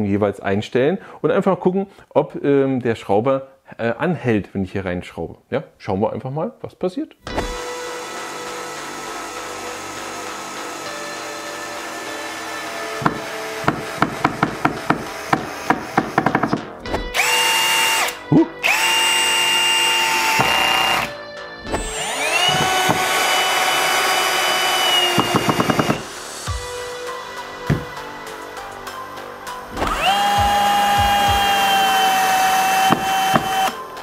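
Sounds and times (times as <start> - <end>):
drill motor whine: 7.4 - 14.0, 17.1 - 21.1, 21.7 - 26.6, 29.8 - 33.8.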